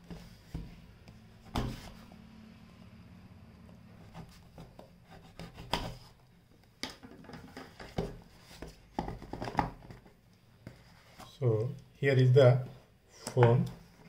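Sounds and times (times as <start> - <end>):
cardboard rubbing and scraping: 1.4 - 2.1, 3.9 - 6.2.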